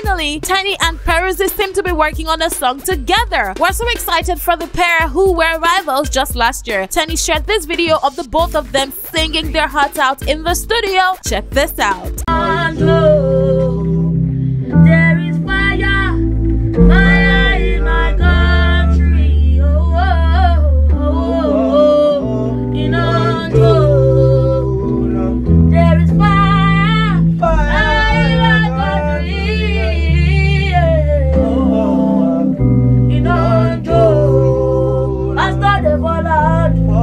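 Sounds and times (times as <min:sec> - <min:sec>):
beat with deep bass line: 0:00.0 - 0:37.0
woman and man singing: 0:16.8 - 0:37.0.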